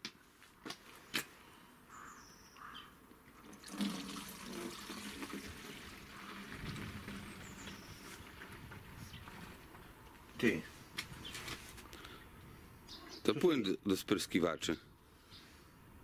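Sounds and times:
liquid pouring through a funnel: 3.4 - 8.6.

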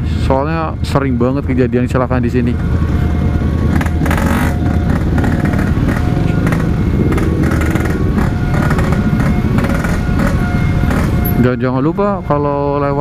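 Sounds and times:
motorcycle engines in traffic: 0.0 - 13.0
motorcycle engine at low revs: 2.6 - 11.4.

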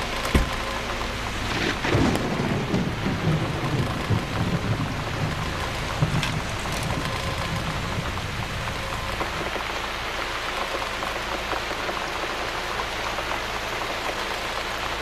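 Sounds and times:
thunder rumbling: 0.0 - 9.8
steady rain: 0.0 - 15.0.

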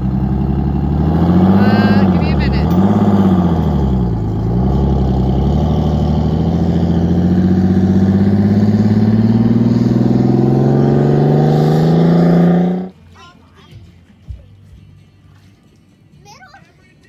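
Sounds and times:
diesel bus engine pulling hard: 0.0 - 13.0.

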